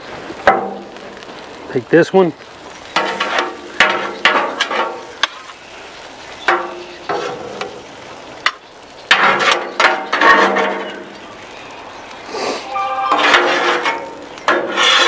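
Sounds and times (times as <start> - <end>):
food sizzling faintly: 0.0 - 15.0
metal spatulas scraping griddle: 7.1 - 7.7, 12.3 - 15.0.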